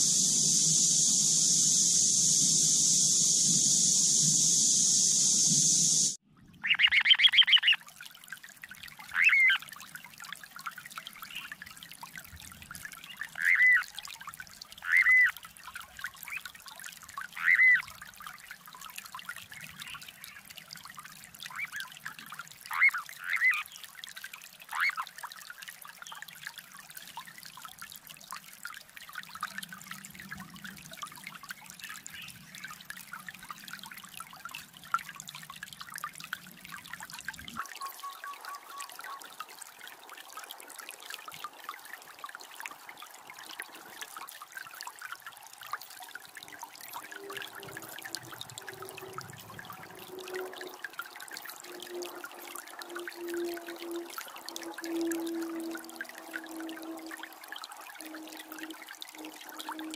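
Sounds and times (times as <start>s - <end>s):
running water trickling: 0.0s - 59.9s
bird whistled call notes: 37.6s - 39.3s.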